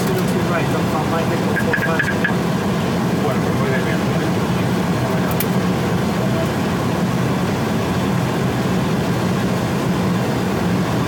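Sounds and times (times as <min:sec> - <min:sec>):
engine drone: 0:00.0 - 0:11.0
low hum: 0:00.2 - 0:03.2.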